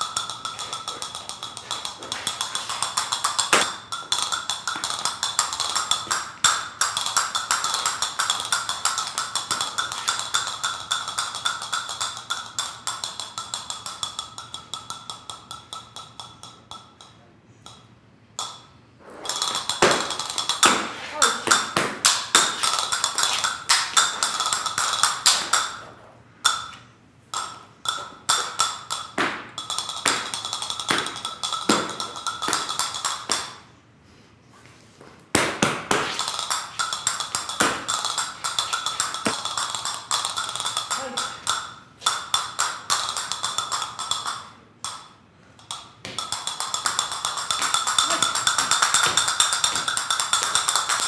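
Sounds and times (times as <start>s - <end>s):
castanets clicking: 0.0s - 16.8s, 19.3s - 25.8s, 35.8s - 51.0s.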